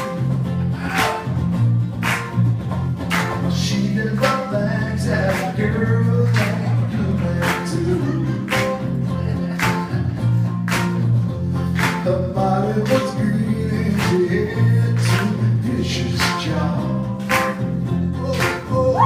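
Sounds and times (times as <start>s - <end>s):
heavy bass line: 0.0s - 19.0s
live rock band playing: 0.0s - 19.0s
person singing: 3.6s - 10.3s, 11.9s - 17.2s, 18.1s - 19.0s.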